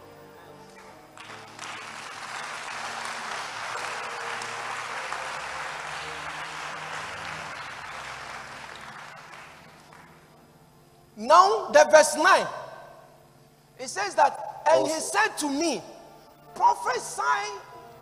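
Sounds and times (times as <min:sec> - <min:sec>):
congregation applauding: 0:00.0 - 0:10.4.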